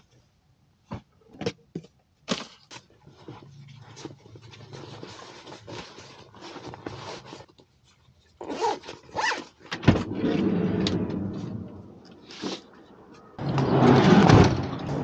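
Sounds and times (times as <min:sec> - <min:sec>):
zipper pulled: 0:08.4 - 0:12.7
sliding door rolling open: 0:09.8 - 0:12.5, 0:13.4 - 0:15.0.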